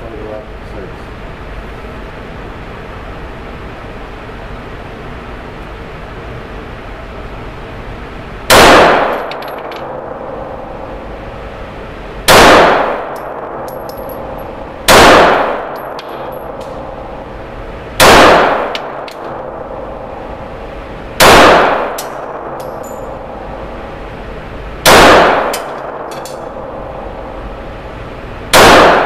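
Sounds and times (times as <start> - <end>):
pistol shots echoing indoors: 8.5 - 11.4, 12.2 - 17.4, 18.0 - 20.6, 21.2 - 23.7, 24.8 - 27.7, 28.5 - 29.0.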